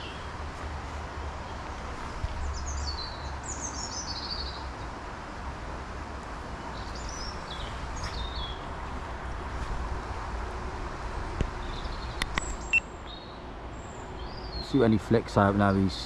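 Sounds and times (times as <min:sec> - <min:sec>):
songbird singing: 0:00.0 - 0:00.4, 0:01.0 - 0:05.2, 0:06.2 - 0:09.4, 0:11.2 - 0:16.0.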